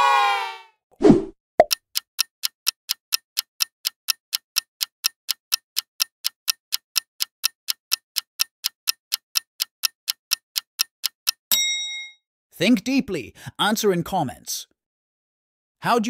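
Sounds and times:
clock ticking: 1.6s - 11.5s.

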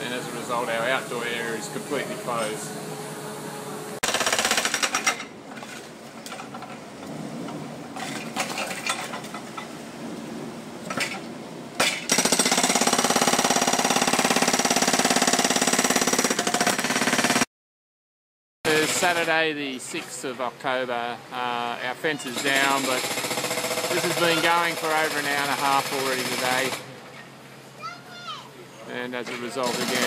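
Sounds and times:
hydraulic rock breaker hammering concrete: 4.0s - 5.3s, 11.8s - 17.5s, 18.7s - 19.4s, 22.2s - 26.9s, 29.2s - 30.0s.

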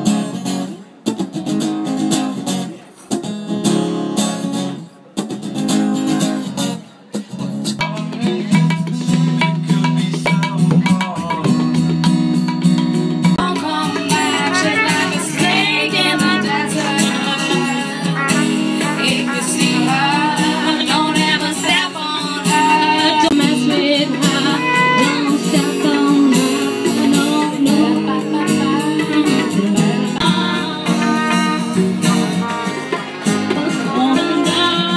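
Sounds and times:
acoustic guitar: 0.0s - 34.9s
woman singing: 13.4s - 32.5s, 33.4s - 34.9s
harmonium: 13.4s - 34.9s.

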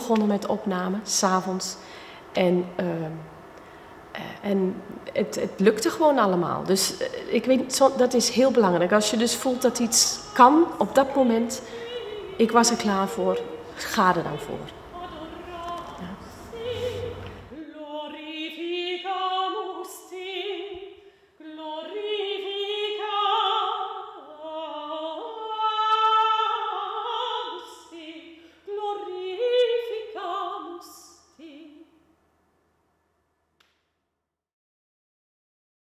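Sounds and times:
soprano singing classical piece: 6.4s - 31.9s.

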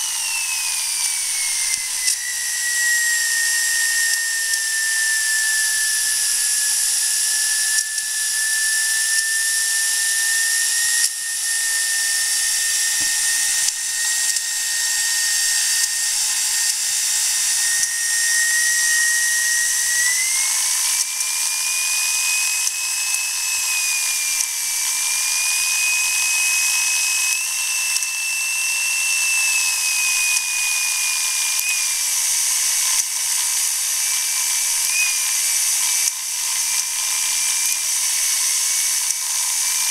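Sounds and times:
steam hissing: 0.0s - 39.9s
steam turbine whine: 0.0s - 39.9s.

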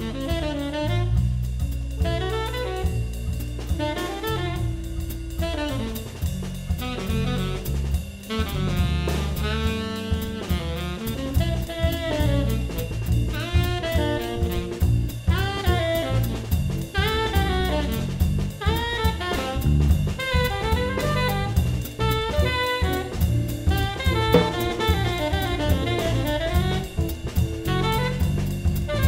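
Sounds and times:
drum kit with cymbals: 0.0s - 29.0s
electric bass: 0.0s - 29.0s
tenor saxophone melody: 0.0s - 29.0s.

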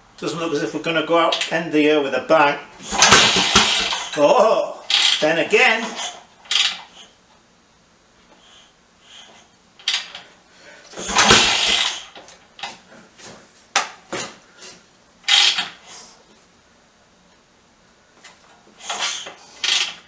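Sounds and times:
engine turning over clatter: 2.8s - 4.2s, 11.0s - 12.2s.

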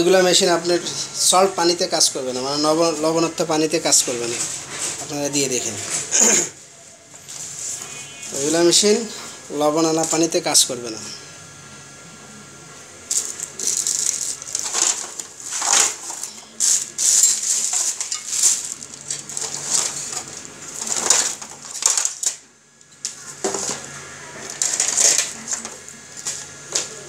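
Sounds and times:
hands rummaging through metal parts: 13.1s - 22.4s.

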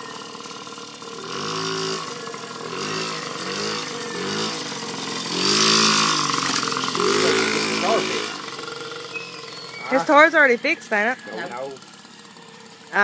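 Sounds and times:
dirt bike engine revving: 0.0s - 13.0s.

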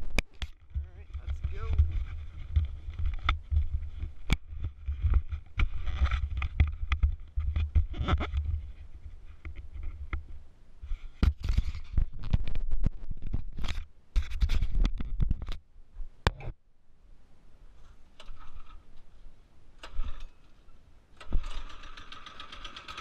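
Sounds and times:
low microphone rumble: 0.0s - 11.2s.

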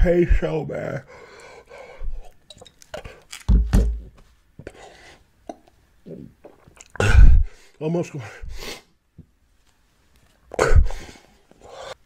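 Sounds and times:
man chewing and swallowing: 5.4s - 7.4s.

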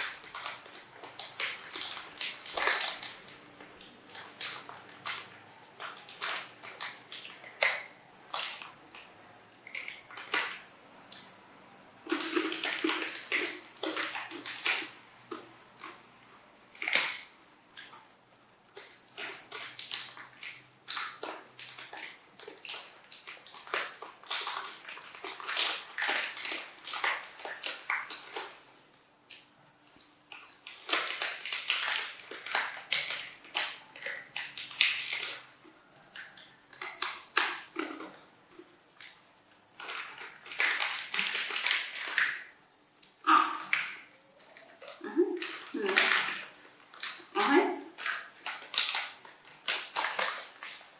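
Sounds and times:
foil snack packets crinkling: 0.0s - 11.2s, 12.0s - 16.1s, 18.7s - 28.7s, 29.3s - 50.9s
monkey crunching peanuts: 30.3s - 50.9s.

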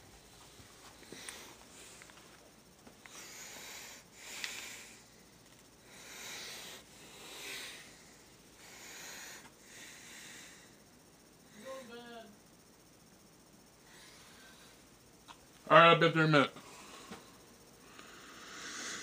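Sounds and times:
person breathing: 0.8s - 2.1s, 3.0s - 11.8s, 13.8s - 15.0s, 16.6s - 19.0s.

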